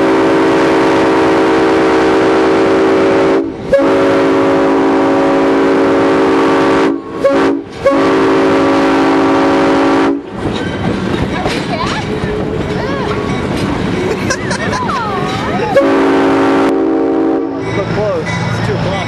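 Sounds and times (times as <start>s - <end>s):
locomotive air horn: 0.0s - 10.3s, 15.7s - 17.6s.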